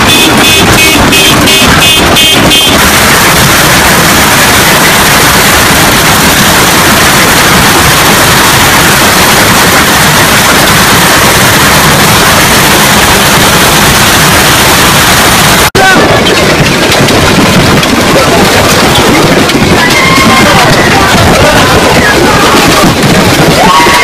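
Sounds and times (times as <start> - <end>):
hailstones pelting down: 0.0 - 24.0.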